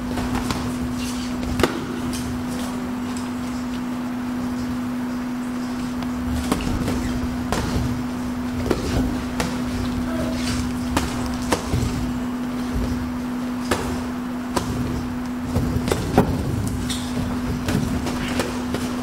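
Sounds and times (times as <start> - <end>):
boxing gloves slapping: 0.0 - 3.8, 5.9 - 19.0
steady low hum: 0.0 - 19.0.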